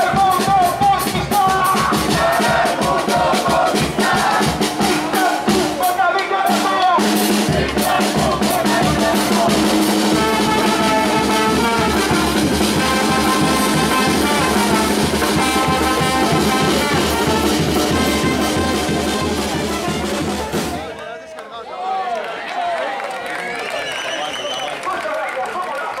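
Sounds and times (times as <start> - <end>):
drums and cymbal beat: 0.0 - 20.9
brass street band playing: 0.0 - 21.0.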